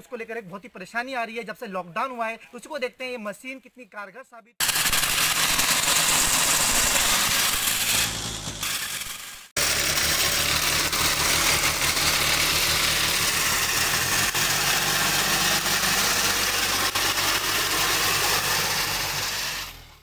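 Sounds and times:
reaper cutting wheat: 4.6s - 20.0s
tractor engine running: 4.6s - 20.0s.

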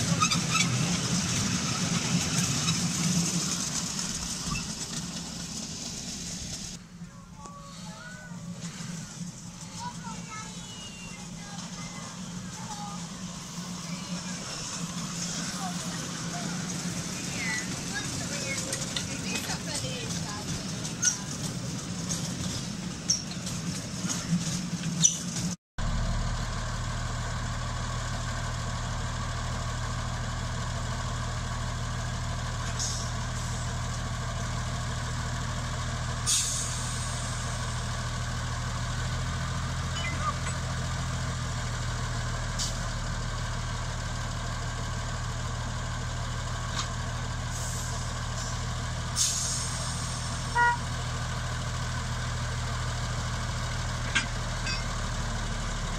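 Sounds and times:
miniature train clicking and rattling: 0.0s - 6.8s, 7.4s - 25.6s, 27.6s - 55.9s
diesel locomotive idling: 0.0s - 55.9s.

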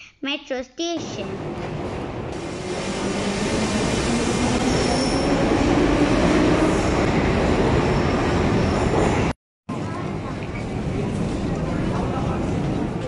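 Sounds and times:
faint high wheel squeal: 4.8s - 5.3s.

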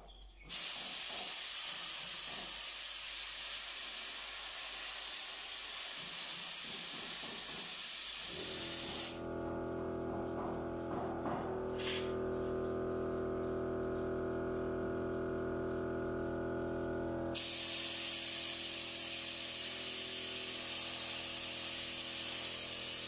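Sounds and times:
spray gun hissing: 0.5s - 9.2s, 11.7s - 12.2s, 17.3s - 23.0s.

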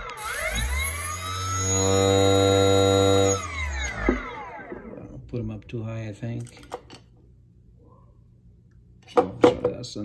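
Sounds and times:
electric motor whine: 0.0s - 5.0s.

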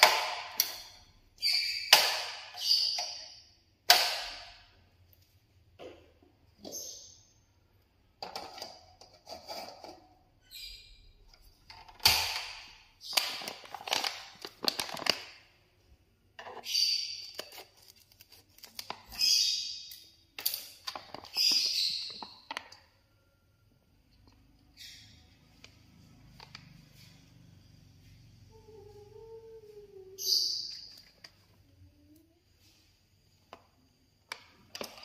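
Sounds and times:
plastic pouch crinkling: 13.2s - 15.5s.

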